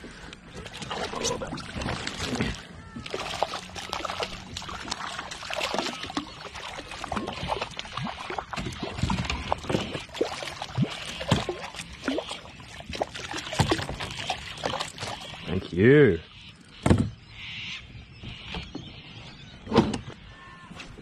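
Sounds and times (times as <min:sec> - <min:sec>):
water splashing and trickling: 0:00.0 - 0:16.0
fish thrashing at surface: 0:00.6 - 0:15.4.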